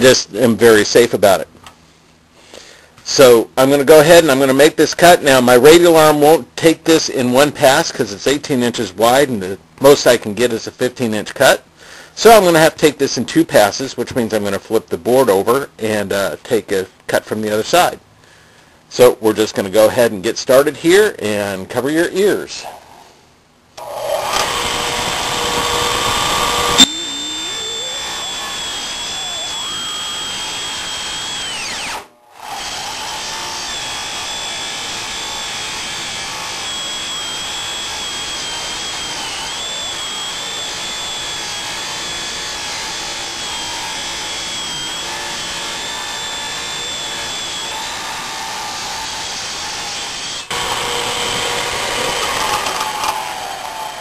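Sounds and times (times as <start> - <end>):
saw whining through wood: 23.8 - 54.0.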